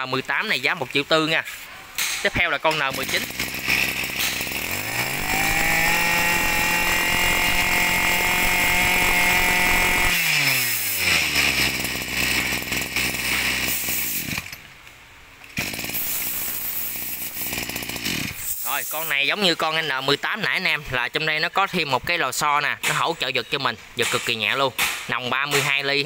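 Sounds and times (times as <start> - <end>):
brush cutter engine running: 2.8 - 14.6, 15.6 - 18.6
steady hissing noise: 13.7 - 25.4.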